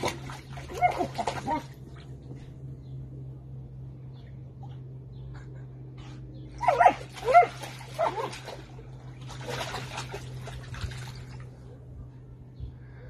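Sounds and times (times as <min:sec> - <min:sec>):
dog splashing water: 0:00.0 - 0:02.4, 0:06.6 - 0:11.7.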